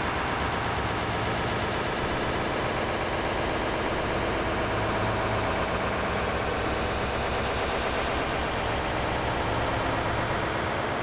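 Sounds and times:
dense static-like noise: 0.0 - 11.0
low hum: 0.0 - 11.0.

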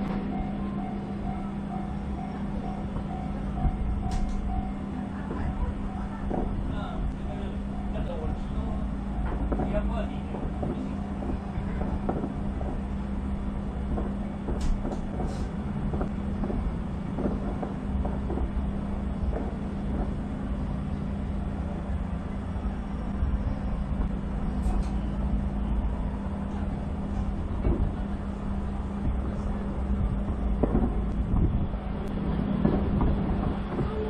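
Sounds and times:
steady low hum: 0.0 - 34.0
distant fireworks bursting: 6.2 - 6.7, 8.2 - 24.4, 27.5 - 34.0
fireworks pops and crackles: 9.3 - 12.9, 13.8 - 20.3, 30.2 - 34.0.

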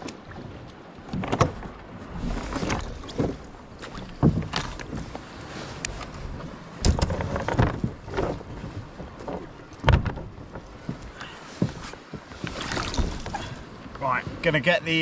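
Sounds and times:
gear knocking on kayak hull: 6.8 - 12.3.

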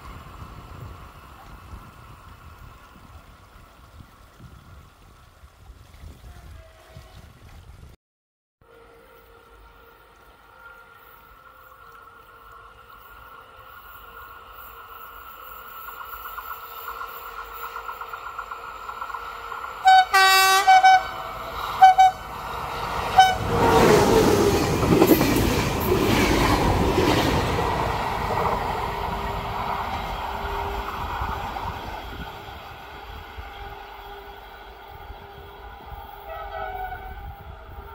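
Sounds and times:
train passing with wheel rumble: 0.0 - 5.7, 8.6 - 37.9
train horn: 6.3 - 7.2, 8.6 - 14.3, 19.8 - 25.2, 32.9 - 37.9.

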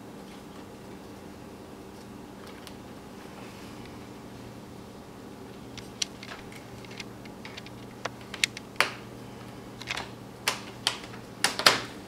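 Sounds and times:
plastic clips clicking into place: 5.8 - 9.0.

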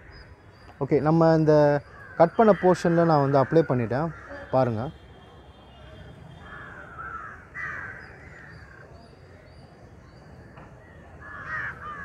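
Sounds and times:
crows cawing: 1.5 - 4.9, 5.8 - 9.0, 11.2 - 12.0.

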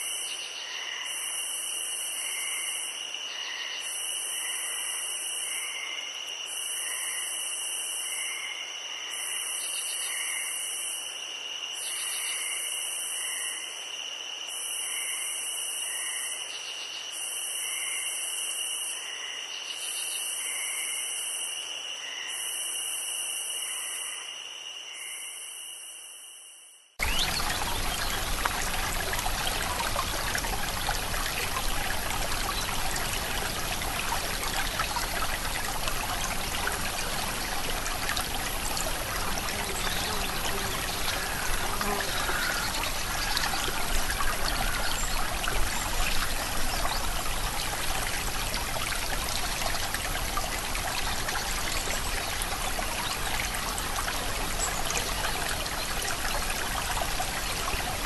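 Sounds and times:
running water rushing: 27.0 - 58.0.

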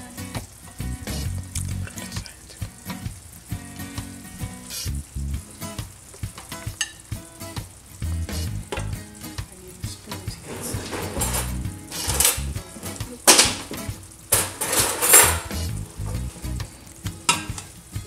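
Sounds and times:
food sizzling in pan: 0.0 - 18.0
metal spatula scraping pan: 10.4 - 12.5, 14.4 - 15.7.

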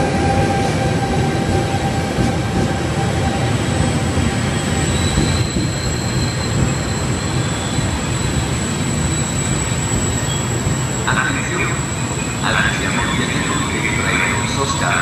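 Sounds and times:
train wheels rumbling on rail: 0.0 - 15.0
high-pitched wheel squeal: 4.4 - 12.4.

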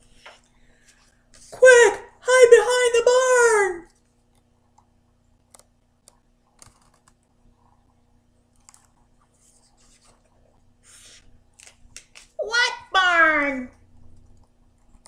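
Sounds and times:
book page turning: 10.9 - 12.4.

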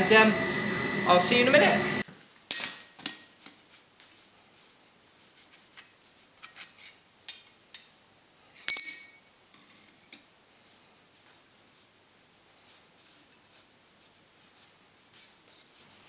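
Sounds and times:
metal clinks on anvil: 8.6 - 9.3.

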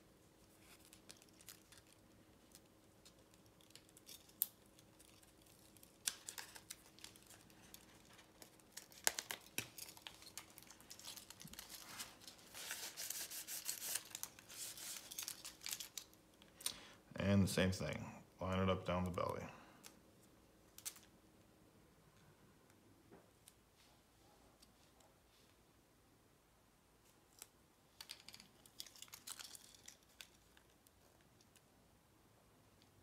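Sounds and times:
plastic film crinkling: 0.4 - 16.7.

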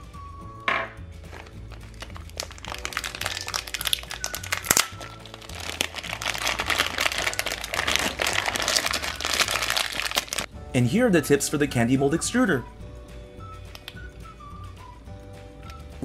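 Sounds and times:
light background music: 0.0 - 16.0
plastic bag crinkling: 1.3 - 10.5.

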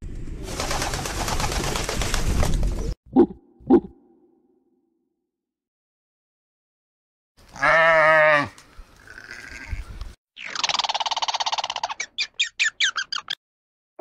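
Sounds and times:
bleat-like animal call: 7.5 - 10.0
squirrel alarm chatter: 10.4 - 13.4.

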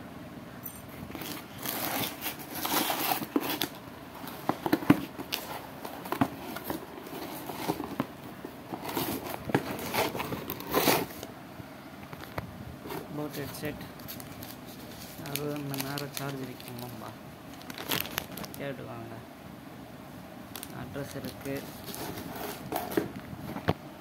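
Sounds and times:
packing tape tearing: 1.1 - 8.1, 8.7 - 11.3, 14.0 - 18.6, 20.5 - 23.0
cardboard rustling and crinkling: 1.1 - 11.3, 12.1 - 18.7, 20.5 - 23.8.

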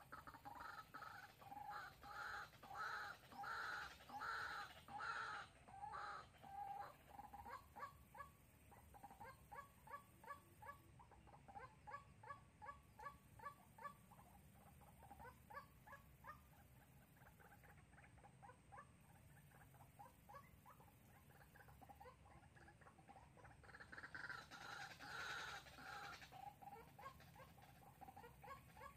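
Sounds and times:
waterhen calling: 0.0 - 28.9.

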